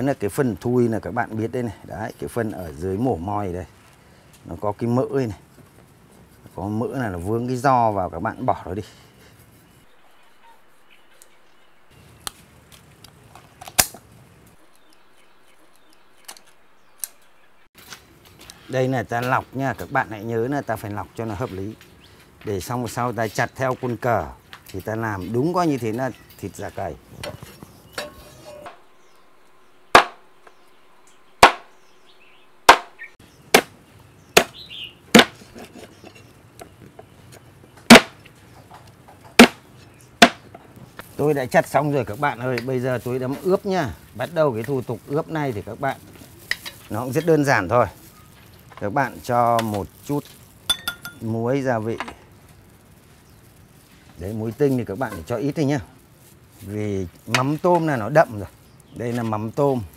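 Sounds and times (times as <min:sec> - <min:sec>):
cleaver chopping on wooden board: 0:29.9 - 0:30.2, 0:31.4 - 0:31.7, 0:32.7 - 0:32.9, 0:33.5 - 0:33.8, 0:34.4 - 0:34.6, 0:35.2 - 0:35.4, 0:37.9 - 0:38.2, 0:39.4 - 0:39.6, 0:40.2 - 0:40.4.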